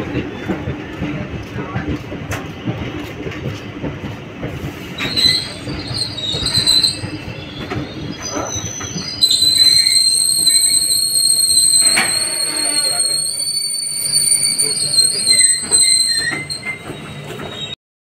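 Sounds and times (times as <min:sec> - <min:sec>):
train wheels rumbling on track: 0:00.0 - 0:17.8
metal wheel squeal: 0:05.0 - 0:17.8.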